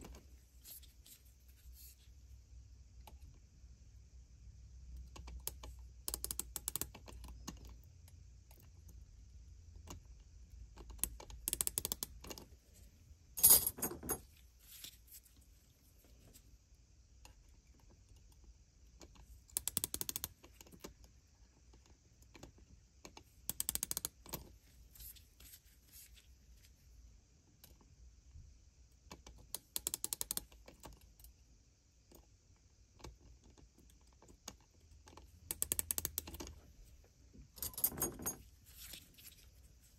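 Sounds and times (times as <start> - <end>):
micrometer ratchet clicking: 19.5 - 20.3, 23.5 - 24.1.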